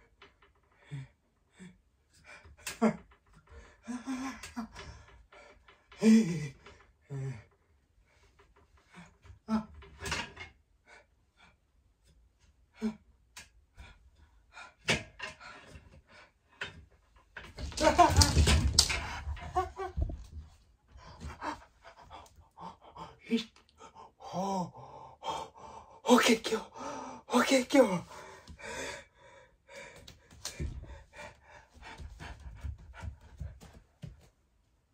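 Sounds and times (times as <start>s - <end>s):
man gasping and panting: 0.2s - 10.2s, 13.7s - 16.9s, 17.5s - 34.2s
man grunting: 6.0s - 7.4s
man breathing nervously: 18.8s - 26.0s, 26.6s - 27.3s, 28.1s - 34.2s.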